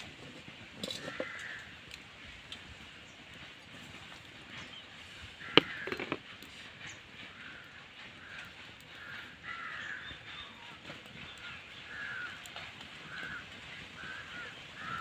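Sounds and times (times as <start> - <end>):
crow cawing: 0.9 - 1.8, 5.4 - 6.2, 7.3 - 10.2, 11.9 - 12.4, 13.1 - 13.4, 14.0 - 15.0.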